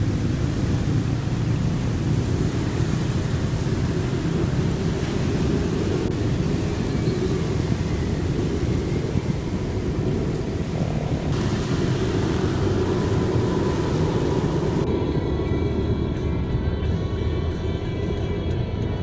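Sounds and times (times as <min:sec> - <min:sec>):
heavy rain hiss: 0:00.0 - 0:15.0
low rumble: 0:00.0 - 0:19.0.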